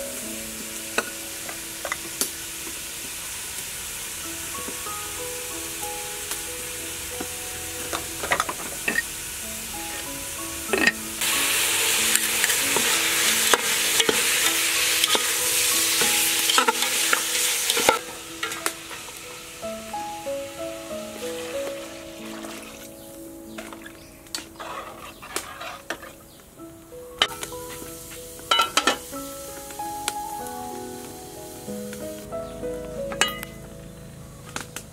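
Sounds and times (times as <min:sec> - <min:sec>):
soft background music: 0:00.0 - 0:03.3, 0:04.0 - 0:34.9
meat sizzling in a pot: 0:00.0 - 0:26.0, 0:27.2 - 0:32.6
metal ladle scraping and clinking: 0:24.6 - 0:26.2.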